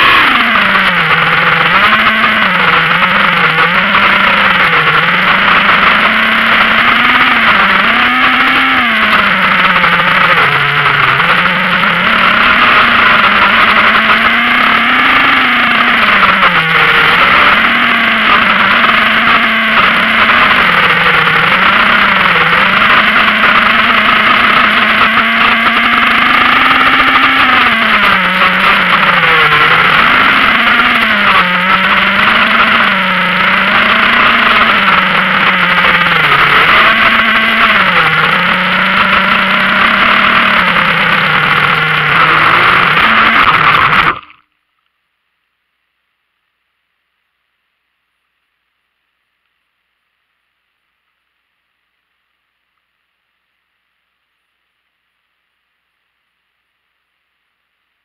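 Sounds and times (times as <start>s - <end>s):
model aircraft motor droning: 0.0s - 44.4s.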